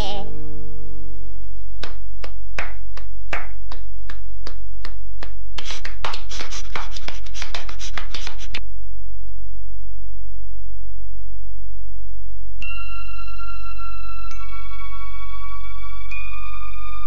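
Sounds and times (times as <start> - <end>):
low steady hum: 0.0 - 5.3.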